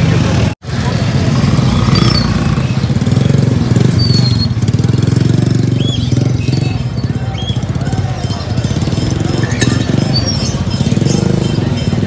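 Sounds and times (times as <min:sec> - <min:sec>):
motorcycle engine running: 0:00.0 - 0:12.0
caged birds chirping: 0:01.5 - 0:12.0.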